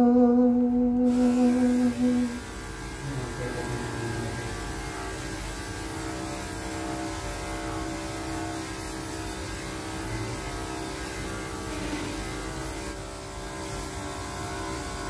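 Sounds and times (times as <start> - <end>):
electric hair clippers humming: 0.0 - 15.0.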